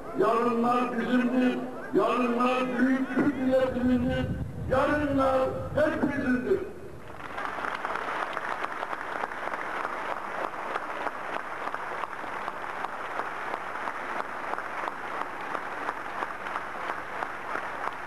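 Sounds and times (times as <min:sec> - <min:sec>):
crowd applauding: 0:07.1 - 0:18.0.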